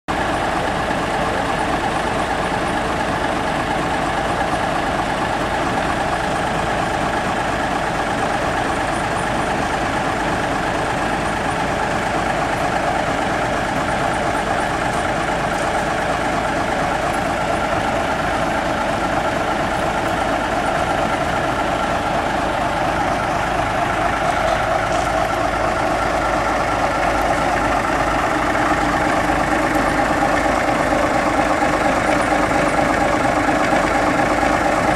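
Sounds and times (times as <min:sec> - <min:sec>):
locomotive engine idling: 0:00.1 - 0:34.9.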